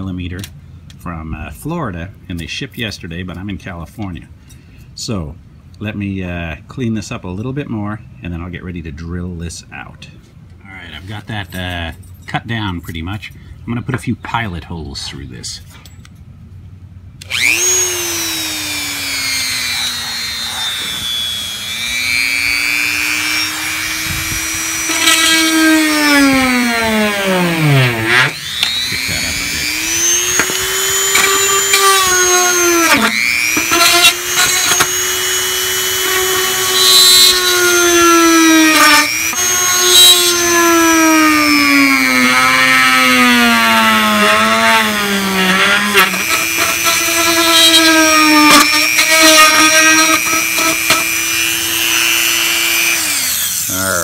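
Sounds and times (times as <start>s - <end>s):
rotary tool drilling and whining: 17.2s - 54.0s.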